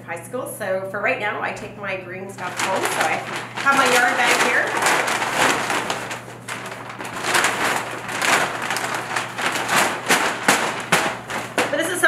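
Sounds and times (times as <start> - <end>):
stiff paper bag rustling: 2.4 - 12.0.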